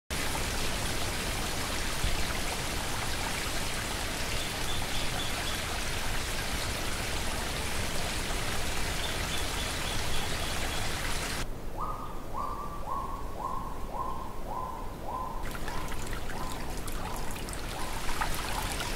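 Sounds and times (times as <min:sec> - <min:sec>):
stream running over rocks: 0:00.1 - 0:11.4, 0:15.4 - 0:18.9.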